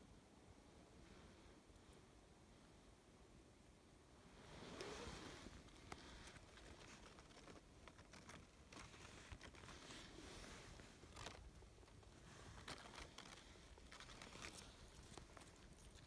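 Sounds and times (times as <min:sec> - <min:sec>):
faint light clicks and rustles: 0:04.5 - 0:16.0.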